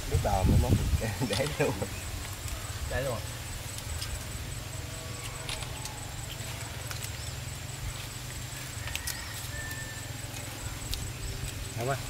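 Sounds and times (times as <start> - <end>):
wind on microphone: 0.0 - 2.4
small clicks and ticks: 5.1 - 12.0.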